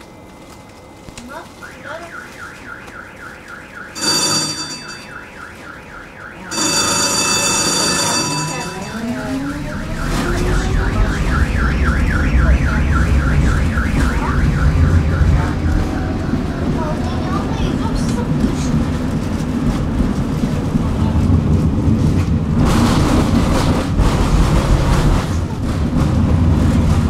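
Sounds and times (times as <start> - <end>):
warbling electronic warning tone: 1.6 - 16.7
tram motor whine: 2.8 - 27.0
bright ringing tones: 4.0 - 5.3, 6.5 - 10.3
low rumble: 8.7 - 27.0.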